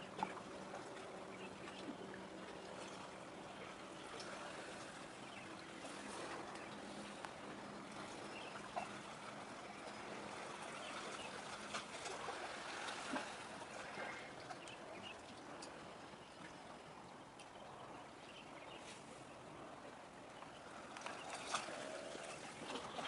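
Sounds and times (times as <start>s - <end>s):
low distant hum: 0.0s - 23.0s
steady water-like hiss: 0.8s - 14.6s.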